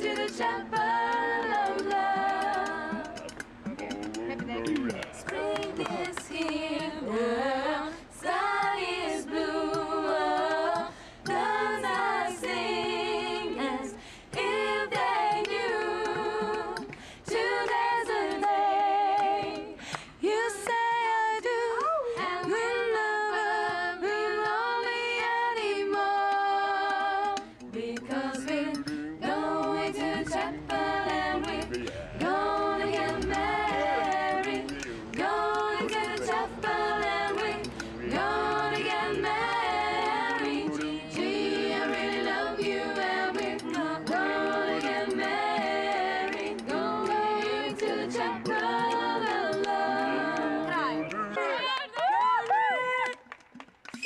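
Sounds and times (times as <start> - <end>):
group singing a cappella: 0.0 - 52.0.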